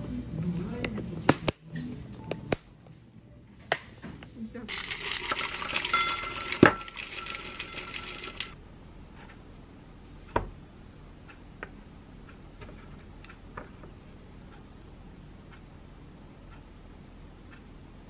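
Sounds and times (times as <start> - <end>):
glass clink: 5.5 - 8.6.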